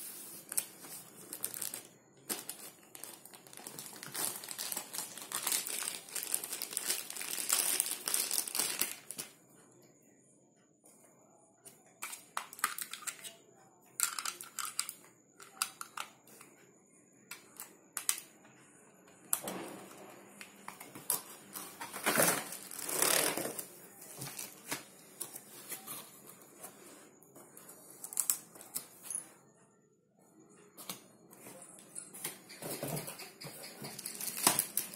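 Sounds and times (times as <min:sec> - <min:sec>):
cardboard and plastic rustling: 0:00.0 - 0:09.3, 0:20.9 - 0:26.8, 0:33.8 - 0:34.9.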